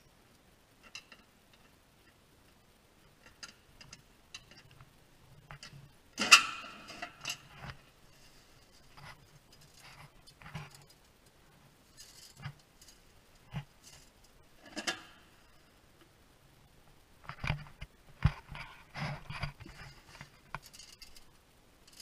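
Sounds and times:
knocks and scrapes: 0:03.2 - 0:11.1, 0:11.9 - 0:15.6, 0:17.2 - 0:21.3
soft rustles: 0:07.4 - 0:15.8, 0:16.8 - 0:22.0.

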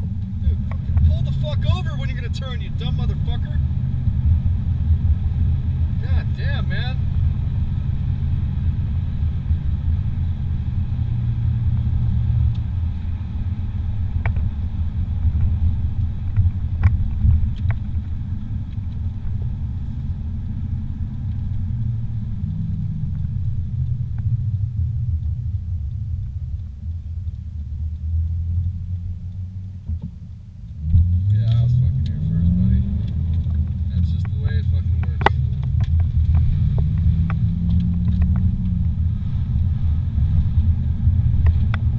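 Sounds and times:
car rumble on paved road: 0:00.0 - 0:41.9
faint ticks: 0:25.0 - 0:32.2.

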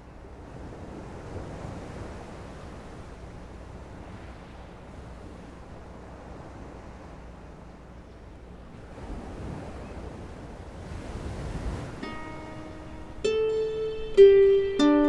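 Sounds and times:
ocean surf washing: 0:00.0 - 0:15.0
wind: 0:00.0 - 0:15.0
plucked harp notes: 0:12.0 - 0:15.0.

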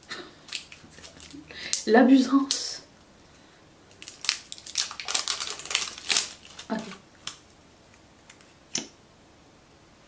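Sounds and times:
packaging crinkling and tearing: 0:00.4 - 0:01.4, 0:03.9 - 0:07.4.

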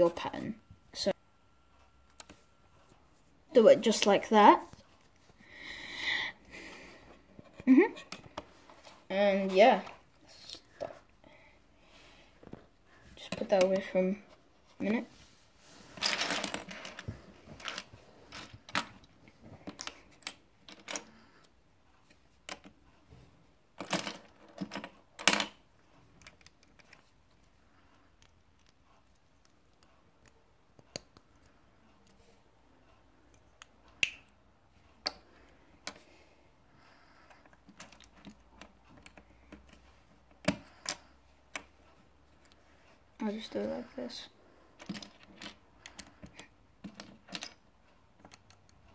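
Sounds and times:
plastic bricks clicking and clattering: 0:16.0 - 0:19.0, 0:44.8 - 0:47.6.

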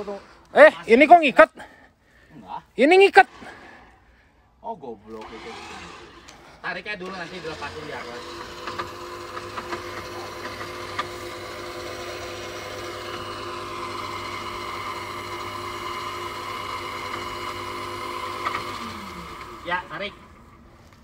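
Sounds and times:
electric winch motor whining: 0:00.0 - 0:01.0, 0:05.0 - 0:21.0.

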